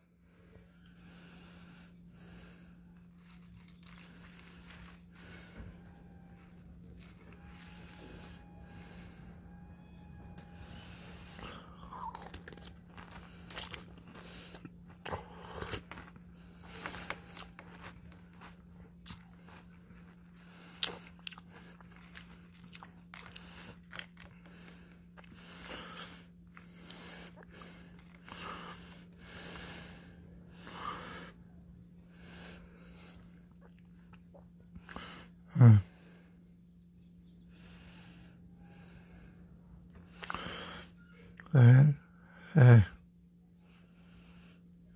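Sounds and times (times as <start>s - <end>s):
steady low hum: 0.0s - 44.9s
breaths: 0.1s - 34.2s, 37.4s - 41.2s, 43.6s - 44.9s
person chewing crunchy cereal: 1.3s - 9.5s, 10.4s - 35.4s, 39.9s - 41.5s.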